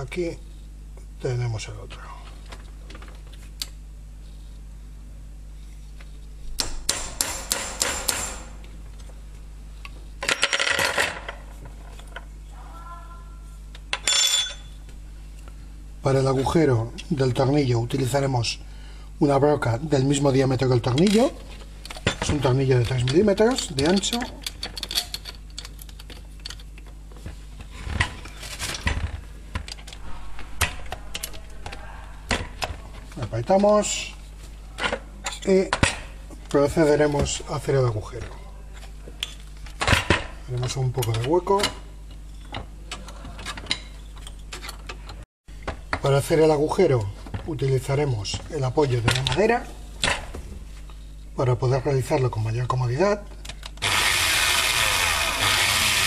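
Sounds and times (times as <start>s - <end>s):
tools clattering: 13.9s - 14.8s, 21.9s - 26.8s
ringing metallic clink: 14.0s - 14.8s.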